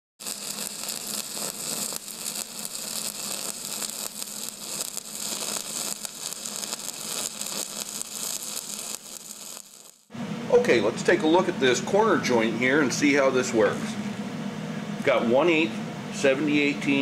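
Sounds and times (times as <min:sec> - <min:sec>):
crackling hiss: 0:00.2 - 0:10.1.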